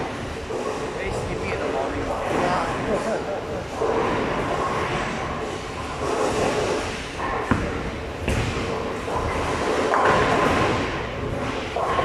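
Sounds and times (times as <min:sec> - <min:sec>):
balls rolling: 0:03.6 - 0:12.0.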